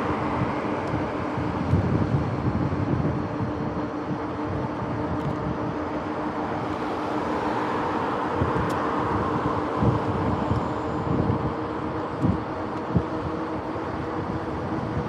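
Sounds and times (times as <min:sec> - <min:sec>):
steady hum: 0:00.0 - 0:15.0
wind buffeting microphone: 0:00.0 - 0:15.0
car passing: 0:06.0 - 0:11.2.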